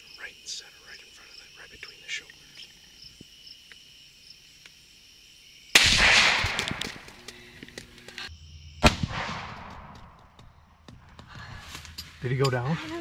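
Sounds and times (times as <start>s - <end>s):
crickets chirping: 0.0s - 13.0s
echoing gunshot: 5.8s - 7.2s, 8.8s - 10.3s
sharp crack: 5.8s - 8.0s, 8.8s - 10.3s.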